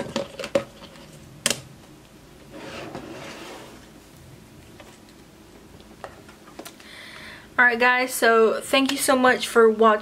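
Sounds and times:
object scraping across tabletop: 2.5s - 3.9s.

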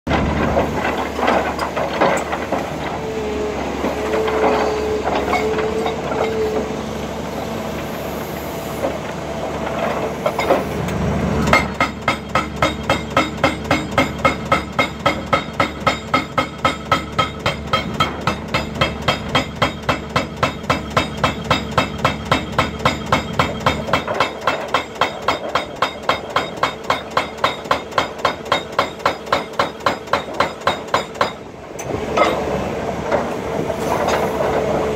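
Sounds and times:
excavator engine and hydraulics: 0.1s - 34.9s
hydraulic breaker hammering rock: 11.4s - 31.5s.

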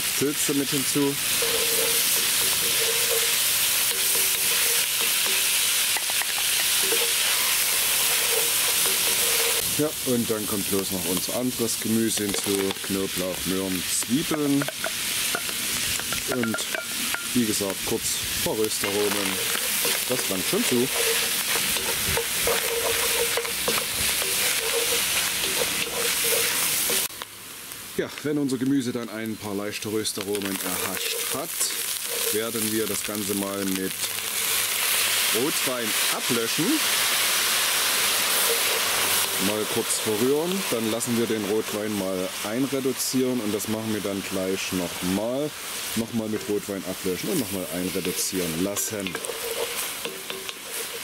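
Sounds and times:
food sizzling in oil: 0.0s - 51.0s
wooden spoon scraping a pot: 1.3s - 9.7s, 18.5s - 27.1s, 30.2s - 34.6s, 47.3s - 51.0s.

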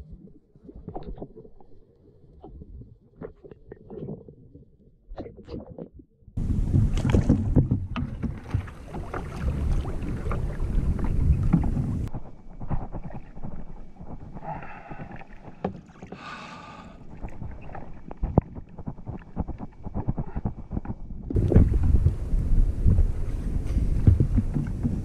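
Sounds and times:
water splashing beside kayak: 5.2s - 25.0s
wind buffeting microphone: 6.4s - 14.4s, 17.2s - 25.0s.

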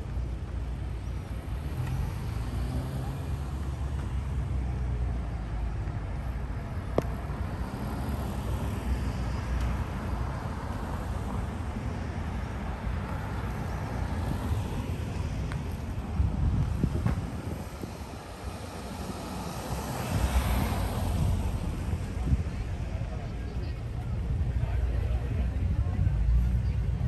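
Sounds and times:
cars passing slowly: 0.0s - 27.0s
low traffic rumble: 0.0s - 27.0s.

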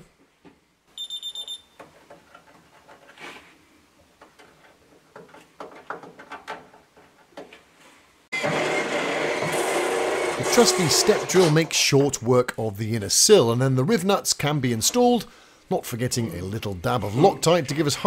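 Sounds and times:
high-pitched beeps: 1.0s - 1.7s
clicks and knocks of handling: 1.8s - 3.2s, 4.1s - 7.7s.

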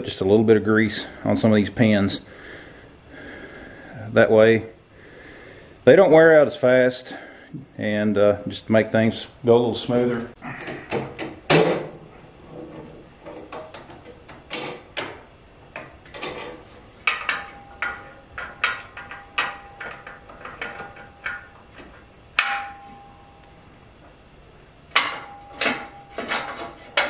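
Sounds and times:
metal clanks and knocks: 10.6s - 23.3s, 24.9s - 27.0s
faint steady ringing tone: 13.2s - 27.0s.

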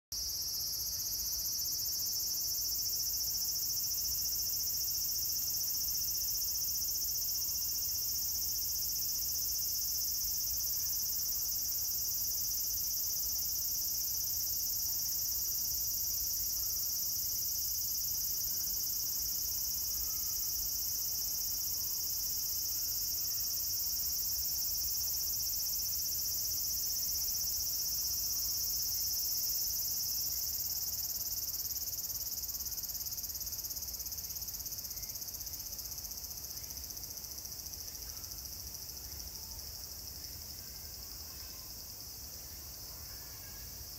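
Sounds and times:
cicadas droning: 0.2s - 43.9s.

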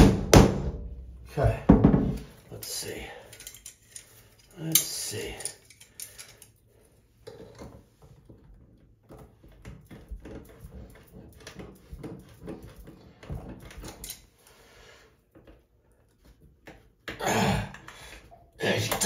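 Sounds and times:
pliers clicking and scraping metal: 3.3s - 6.6s.

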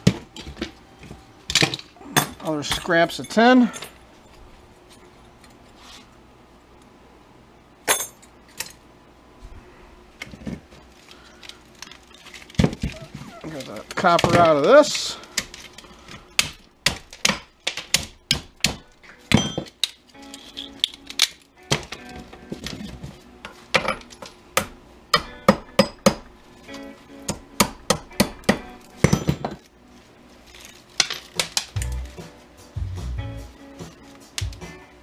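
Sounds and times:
hammer striking metal parts: 18.3s - 21.0s, 27.3s - 29.6s.

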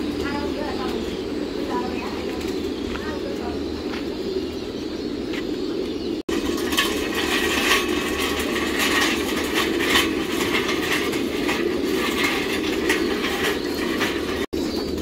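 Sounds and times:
metal cart rattling on concrete: 6.3s - 15.0s.

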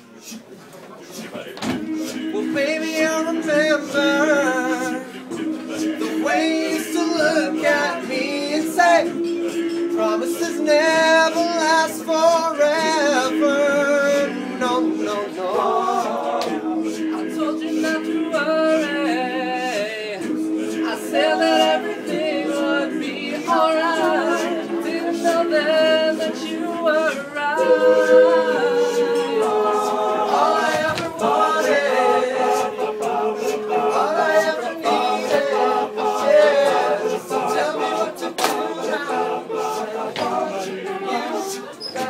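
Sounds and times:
male a cappella group singing: 1.1s - 42.0s.

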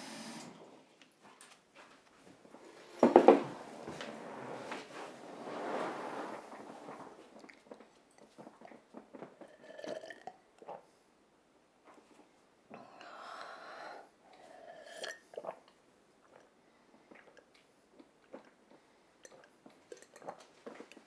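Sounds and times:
person gulping water: 7.4s - 10.9s, 14.7s - 21.0s
person sipping and swallowing: 7.4s - 10.9s, 14.4s - 21.0s.

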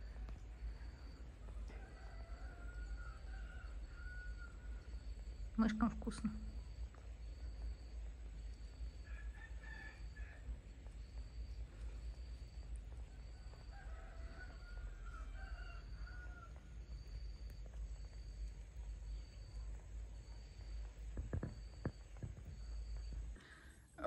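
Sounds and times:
rooster crowing: 0.7s - 5.0s, 9.0s - 10.6s, 13.1s - 16.8s.

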